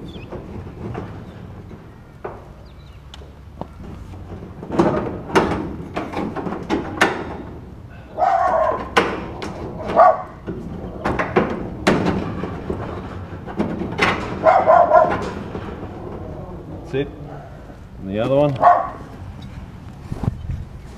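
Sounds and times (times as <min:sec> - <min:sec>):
metal knocking and scraping on post: 0:00.0 - 0:17.5
dog barking: 0:08.2 - 0:08.9, 0:09.9 - 0:10.4, 0:14.4 - 0:15.2, 0:18.6 - 0:19.0.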